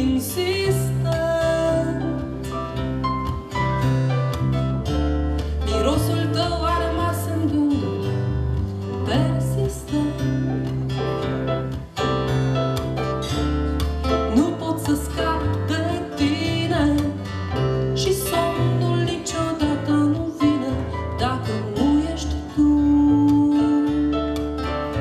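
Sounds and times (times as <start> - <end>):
woman singing: 0.0 - 2.5, 5.6 - 10.8, 14.2 - 24.5
acoustic guitar: 0.0 - 25.0.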